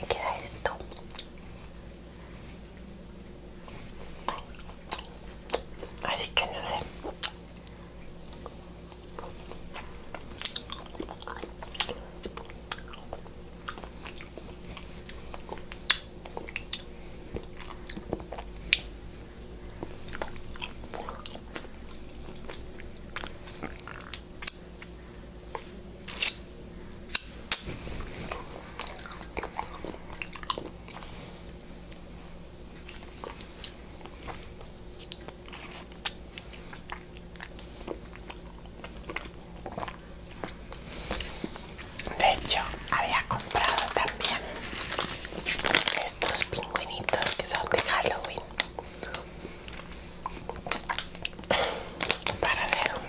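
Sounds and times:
chewing food with wet clicks: 0:00.8 - 0:01.4, 0:04.1 - 0:06.1, 0:07.0 - 0:19.0, 0:19.6 - 0:26.5, 0:28.3 - 0:32.1, 0:32.7 - 0:44.4, 0:45.2 - 0:53.0
crunching bites: 0:26.0 - 0:26.4.

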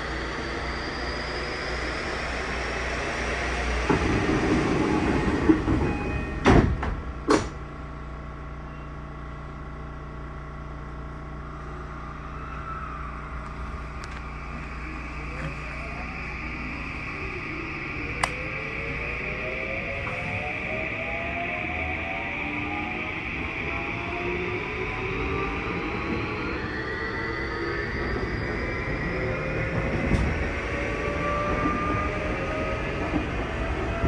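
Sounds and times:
train doors closing thumps: 0:05.4 - 0:07.6
electric train motor whine: 0:10.3 - 0:34.0.

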